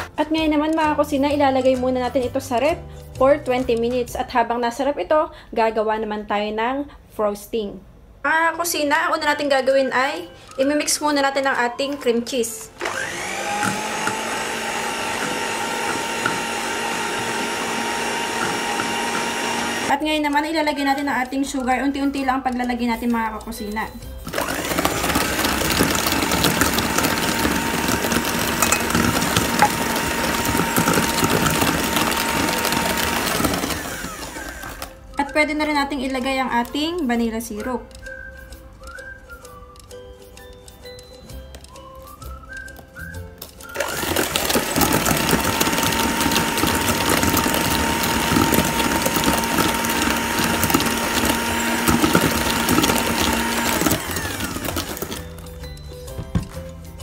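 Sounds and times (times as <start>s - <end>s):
electric hand mixer running: 12.8s - 19.9s, 24.2s - 34.9s, 43.7s - 55.4s.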